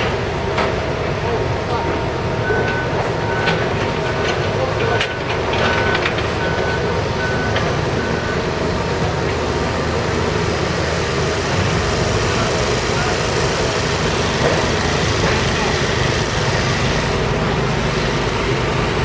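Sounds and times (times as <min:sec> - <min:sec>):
heavy machinery engine rumble: 0:00.0 - 0:19.0
reversing alarm beeps: 0:01.7 - 0:09.1.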